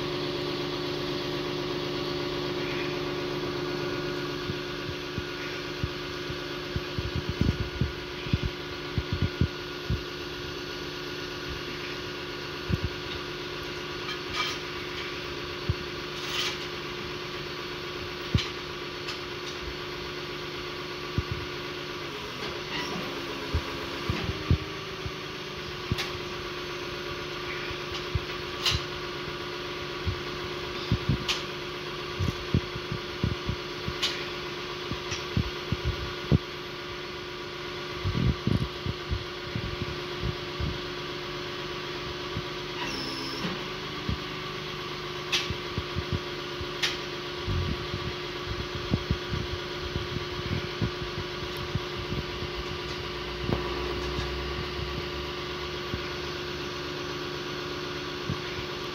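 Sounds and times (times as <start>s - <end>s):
truck engine idling: 0.0s - 42.8s.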